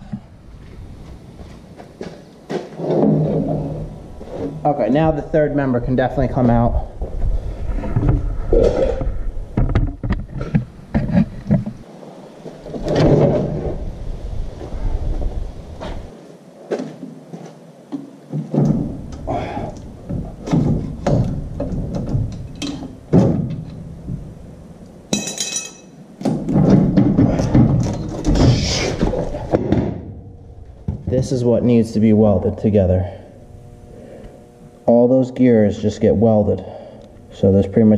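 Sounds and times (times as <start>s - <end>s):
metal knocks and clunks: 2.0s - 4.8s, 18.3s - 24.3s, 26.2s - 31.4s
high metallic ringing: 25.1s - 26.0s.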